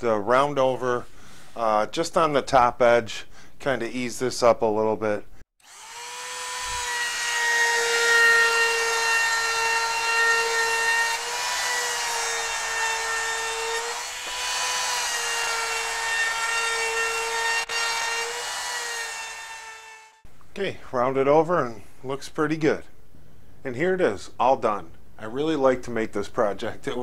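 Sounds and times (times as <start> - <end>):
router bit cutting wood: 5.6 - 20.2
trim router motor whine: 5.6 - 20.2.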